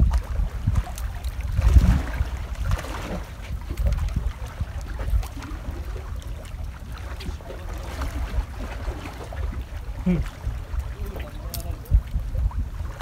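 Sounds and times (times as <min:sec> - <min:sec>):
wind rumbling on microphone: 0:00.0 - 0:13.0
fish handling clicks and rustles: 0:11.0 - 0:12.1.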